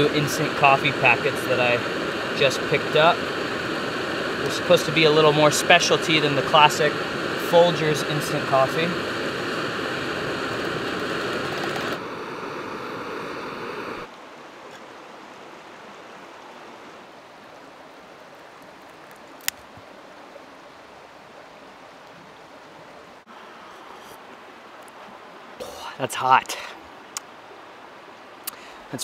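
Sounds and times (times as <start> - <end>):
steady rushing hiss: 0.0 - 15.0, 23.2 - 29.0.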